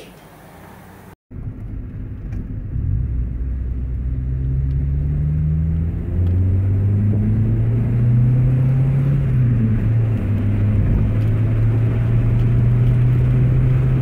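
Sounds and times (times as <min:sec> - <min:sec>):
car engine and exhaust from cabin: 0:00.0 - 0:14.0.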